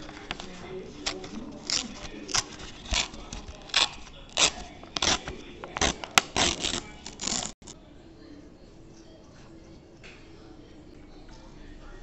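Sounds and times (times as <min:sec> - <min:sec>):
paper tearing: 0:00.0 - 0:07.7.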